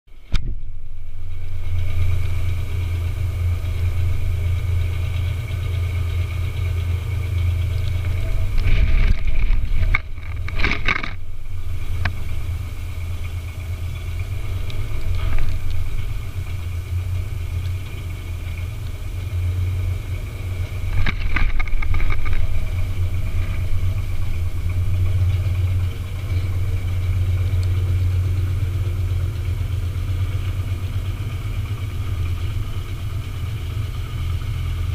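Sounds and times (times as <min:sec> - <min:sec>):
faint high whine: 0:00.1 - 0:33.4
dumper engine droning: 0:00.1 - 0:34.9.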